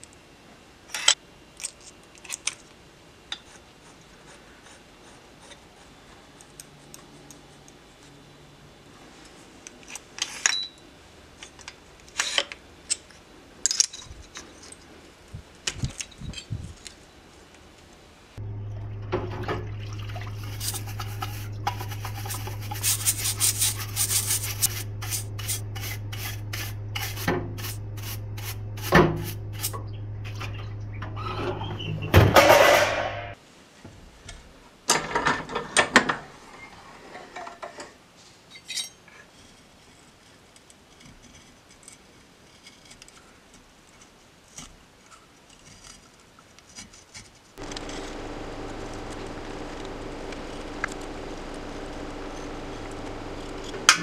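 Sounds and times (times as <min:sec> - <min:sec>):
brush scrubbing metal part: 0:20.1 - 0:29.8
pump humming: 0:47.6 - 0:54.0.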